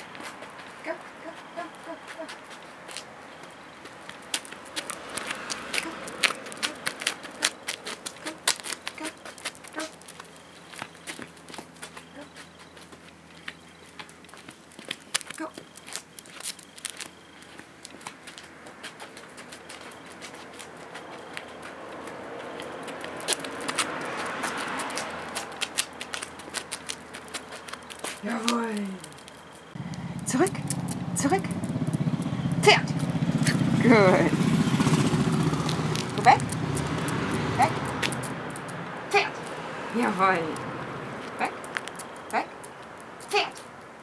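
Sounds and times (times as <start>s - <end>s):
clogs stepping on paving: 0.0s - 34.2s, 34.8s - 44.0s
dog claws clicking on paving: 0.1s - 33.7s, 34.8s - 39.6s, 40.5s - 44.0s.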